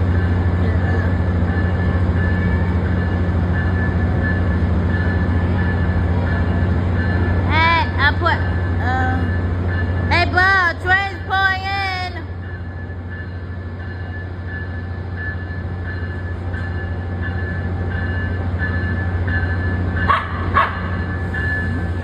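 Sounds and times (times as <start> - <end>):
electric locomotive humming: 0.0 - 22.0
dog barking: 20.1 - 20.9.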